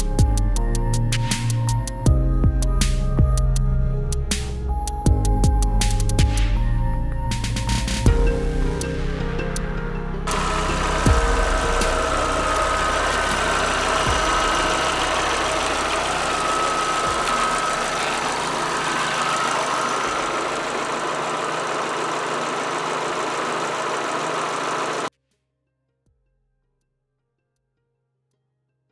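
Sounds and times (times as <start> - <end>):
car engine idling: 10.3 - 25.1.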